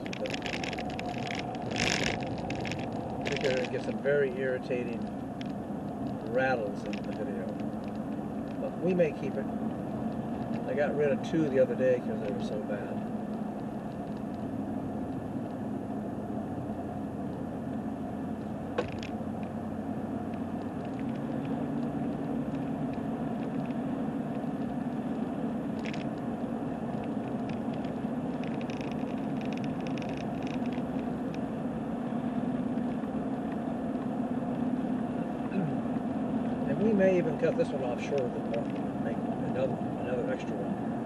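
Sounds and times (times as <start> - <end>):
camera rattling: 0.0 - 4.2, 4.9 - 10.7, 12.3 - 15.6, 18.8 - 19.6, 20.2 - 31.6, 38.1 - 39.0
car driving hum: 0.0 - 41.0.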